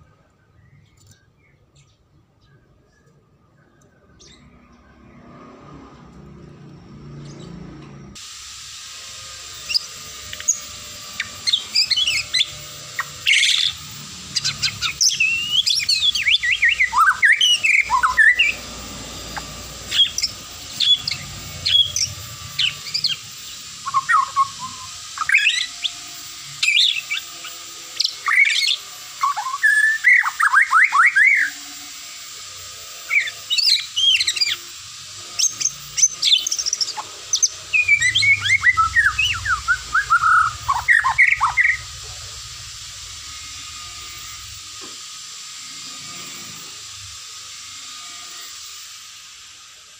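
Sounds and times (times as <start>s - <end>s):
songbird whistling: 13.3s - 18.6s, 23.8s - 25.9s, 35.4s - 41.9s.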